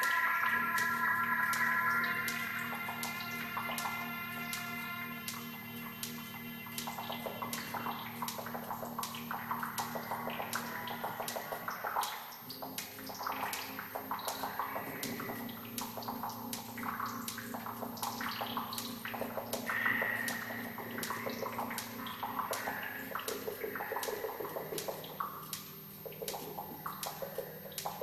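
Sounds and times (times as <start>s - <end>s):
low throbbing drone: 0.0s - 28.0s
watery gurgling texture: 0.0s - 28.0s
sharp clicks: 5.3s - 28.0s.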